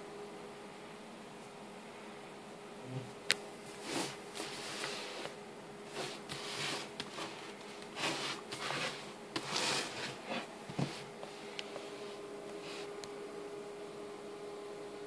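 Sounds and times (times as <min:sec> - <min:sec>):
cardboard box scraping on desk: 0:03.8 - 0:12.9.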